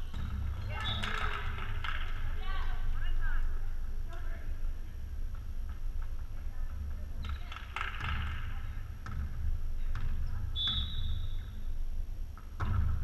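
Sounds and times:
referee's whistle blast: 0:10.6 - 0:11.4.

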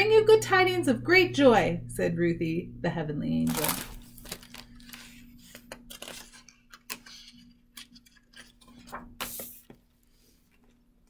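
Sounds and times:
book pages rustling: 0:03.5 - 0:11.0.

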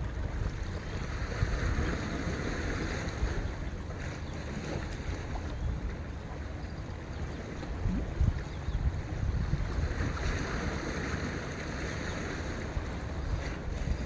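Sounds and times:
hiss of sea and wind: 0:00.0 - 0:05.4, 0:07.8 - 0:14.0
wind buffeting microphone: 0:00.0 - 0:14.0.

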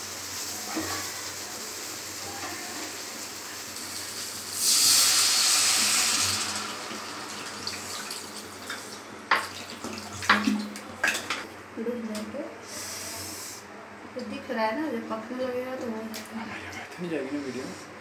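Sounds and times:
water pouring into hot pan: 0:00.0 - 0:10.7.

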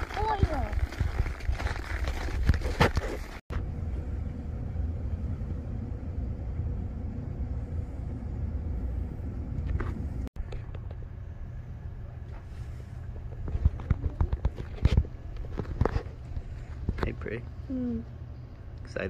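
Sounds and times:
steady low rumble: 0:03.4 - 0:19.0
faint steady hum: 0:03.5 - 0:19.0.

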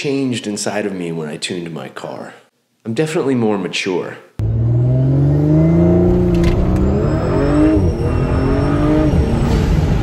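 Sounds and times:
car engine accelerating: 0:04.4 - 0:10.0.

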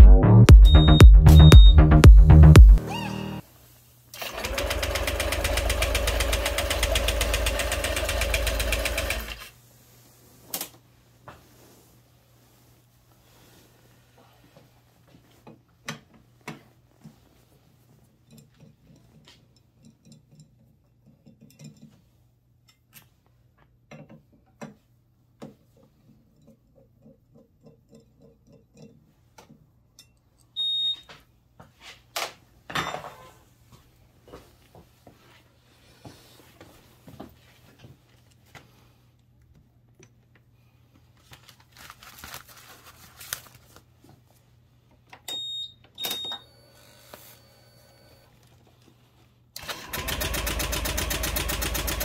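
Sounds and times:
high ringing tone: 0:00.6 - 0:01.9, 0:45.3 - 0:48.2
tools clinking on metal: 0:18.2 - 0:22.0.

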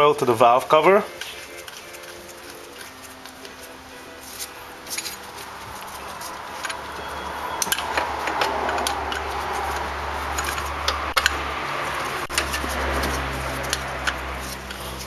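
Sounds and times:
hand tool clicking on metal: 0:07.6 - 0:11.4, 0:12.3 - 0:15.0.

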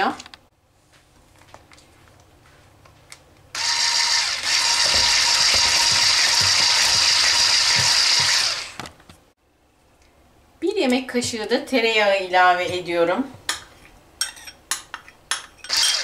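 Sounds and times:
electric mixer whisking: 0:03.6 - 0:08.8.

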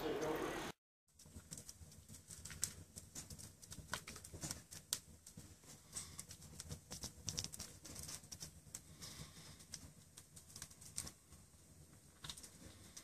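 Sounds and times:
wood fire crackling: 0:00.0 - 0:13.0.

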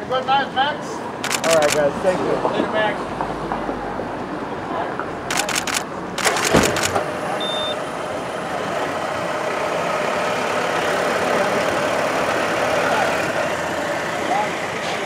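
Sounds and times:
sharp clicks: 0:01.2 - 0:01.8, 0:05.3 - 0:07.0
car engine starting and idling: 0:05.3 - 0:15.0.

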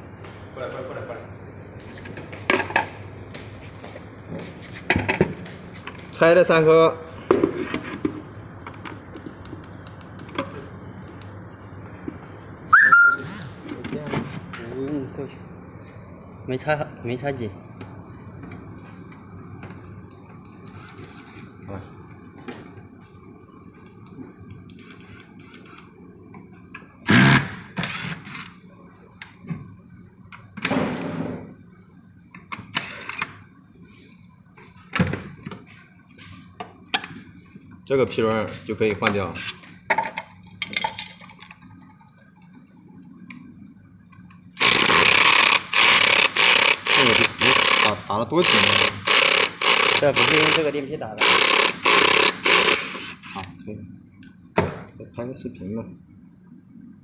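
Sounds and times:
faint steady hum: 0:00.0 - 0:57.0
short high squeak: 0:12.7 - 0:13.5
electric screwdriver running: 0:44.6 - 0:50.6, 0:51.2 - 0:53.5.

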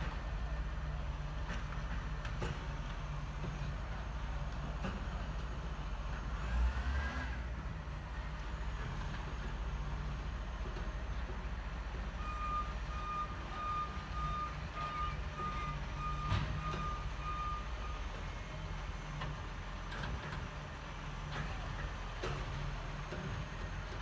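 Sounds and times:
truck warning beeper: 0:12.1 - 0:18.2.

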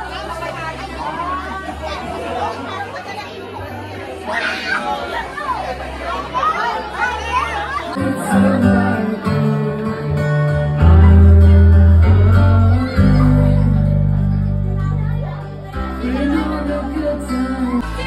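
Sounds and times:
guitar: 0:00.0 - 0:18.0
deep sustained bass notes: 0:08.0 - 0:18.0
person singing: 0:08.0 - 0:18.0.

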